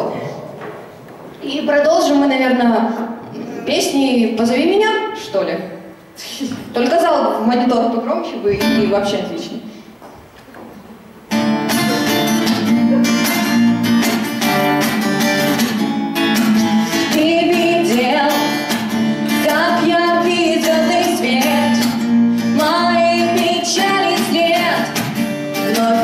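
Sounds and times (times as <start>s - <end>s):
strummed acoustic guitar: 11.3s - 26.0s
woman singing: 17.0s - 26.0s.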